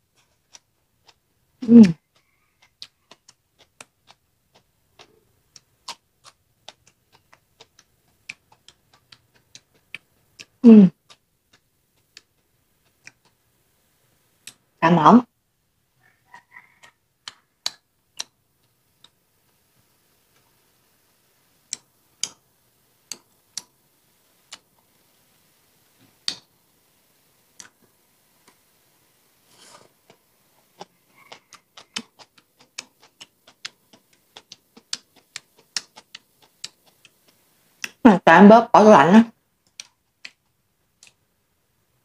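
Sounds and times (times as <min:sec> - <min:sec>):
mouth clicks and smacks chewing: 0:01.8 - 0:13.4, 0:16.3 - 0:19.6, 0:24.4 - 0:25.0, 0:27.6 - 0:27.8, 0:30.0 - 0:38.0, 0:39.6 - 0:41.2.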